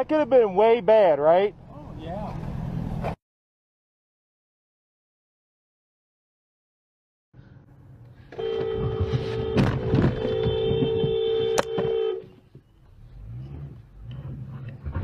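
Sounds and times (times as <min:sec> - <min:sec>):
low road rumble: 0:00.0 - 0:03.2, 0:07.4 - 0:15.0
two-tone car horn: 0:08.3 - 0:12.4.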